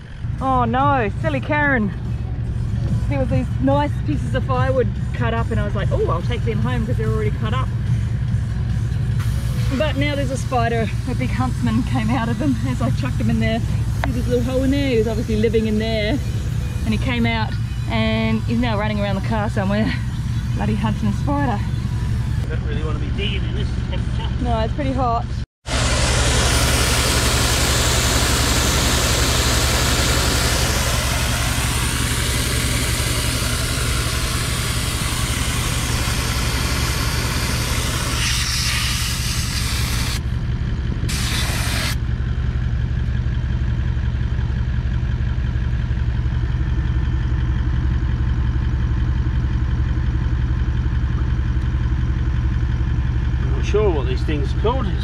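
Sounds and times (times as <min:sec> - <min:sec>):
car engine running: 0:00.0 - 0:55.0.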